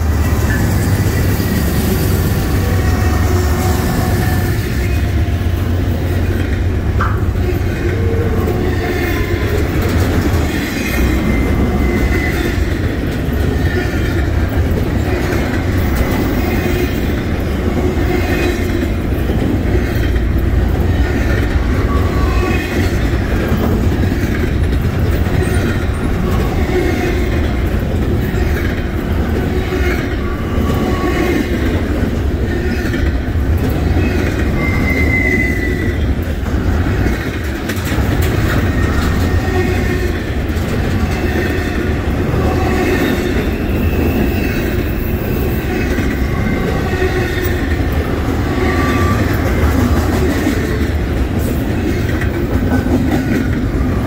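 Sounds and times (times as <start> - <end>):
steel wheels rumbling on rail: 0.0 - 54.0
high-pitched wheel squeals: 34.0 - 36.0, 41.1 - 47.6, 48.5 - 49.5.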